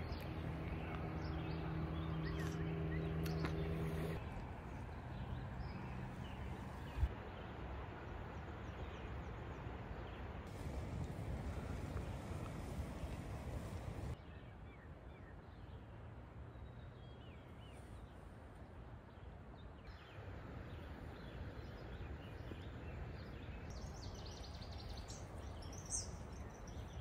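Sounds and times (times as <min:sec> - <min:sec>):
small birds chirping: 0:00.0 - 0:07.5, 0:10.1 - 0:15.9, 0:19.1 - 0:27.0
low steady rush: 0:00.0 - 0:27.0.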